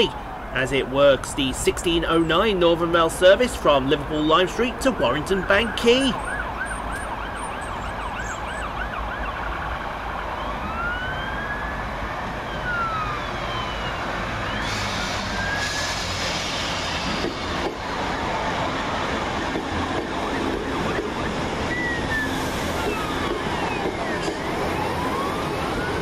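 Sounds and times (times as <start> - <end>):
siren yelping and wailing: 4.5 - 16.0, 20.2 - 26.0
train running into platform: 13.0 - 26.0.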